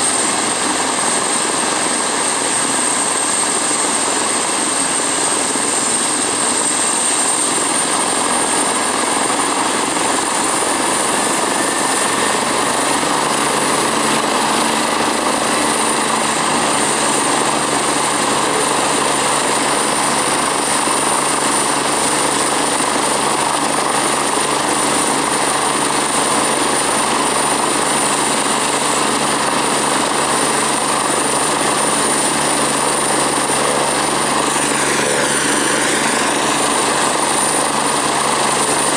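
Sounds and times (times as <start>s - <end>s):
helicopter engine and rotor: 0.0s - 38.9s
high turbine whine: 0.0s - 38.9s.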